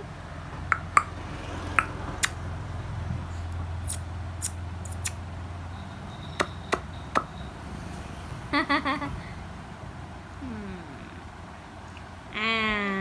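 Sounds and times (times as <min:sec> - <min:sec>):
low steady hum: 0:08.6 - 0:13.0.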